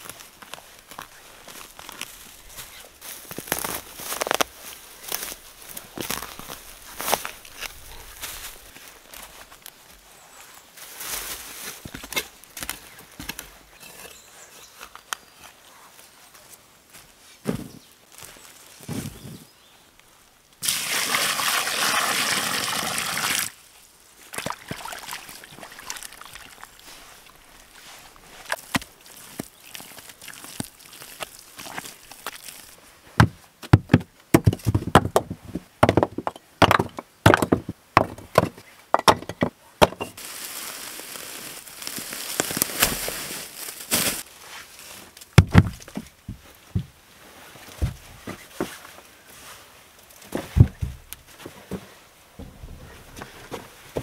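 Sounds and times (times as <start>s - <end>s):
sand pouring: 20.6s - 23.5s
heavy stone slab thud: 33.2s - 40.2s, 45.4s - 45.8s
knocks and scrapes: 50.3s - 54.0s.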